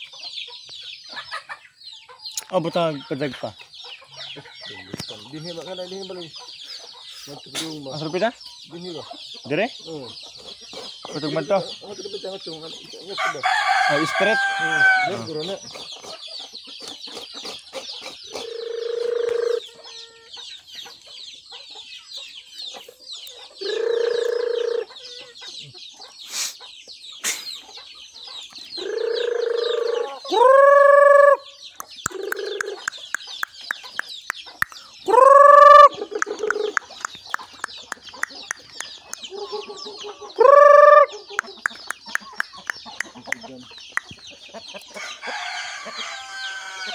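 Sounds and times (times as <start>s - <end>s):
chickens clucking: 0.0s - 46.9s
chicks peeping: 0.0s - 46.9s
loud drawn-out chicken calls: 13.0s - 46.9s.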